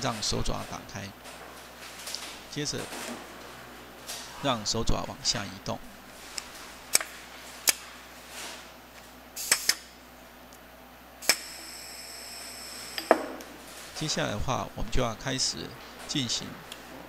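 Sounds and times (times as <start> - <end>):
pneumatic gripper clicks: 9.4 - 9.9, 11.2 - 11.6.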